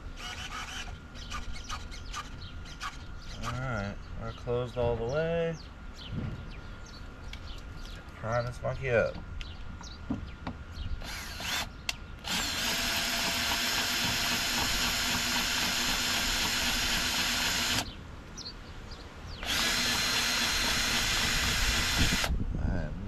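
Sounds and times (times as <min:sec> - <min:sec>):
cordless drill whining: 0:00.2 - 0:03.0, 0:11.0 - 0:17.9, 0:19.4 - 0:22.3.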